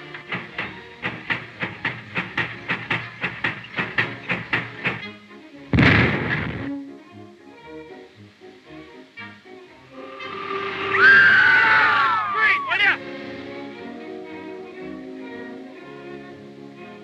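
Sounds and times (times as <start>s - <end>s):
engine hand-crank clacking: 0.0s - 5.1s
music: 0.0s - 17.0s.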